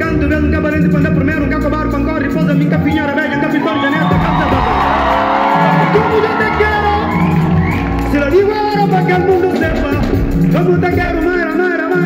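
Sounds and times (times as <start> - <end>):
repeating bass line: 0.0 - 11.4
live band playing: 0.0 - 12.0
audience whooping: 2.9 - 10.0.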